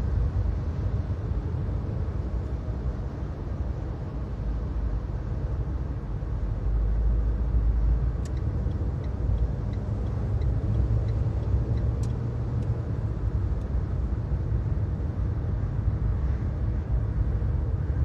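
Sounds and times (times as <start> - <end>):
car cruising rumble from cabin: 0.0 - 18.0
faint repeating tick: 8.2 - 12.8.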